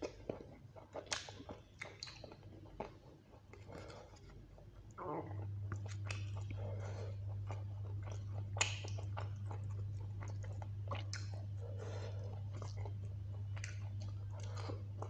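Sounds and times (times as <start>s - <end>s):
person chewing food: 0.0s - 15.0s
steady low hum: 0.0s - 15.0s
wet mouth smacks and clicks: 1.0s - 2.3s, 8.6s - 9.0s, 11.1s - 11.4s.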